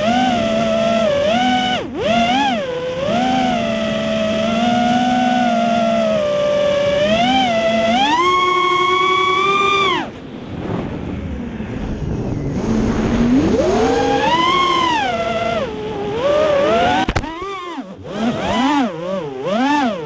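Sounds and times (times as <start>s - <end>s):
drone motors whining: 0.0s - 20.0s
rush of air: 10.1s - 14.4s
sharp click: 17.0s - 17.4s.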